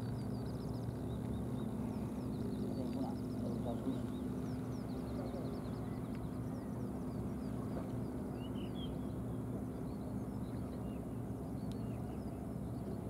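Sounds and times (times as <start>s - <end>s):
small birds chirping: 0.0s - 9.2s
steady low hum: 0.0s - 13.0s.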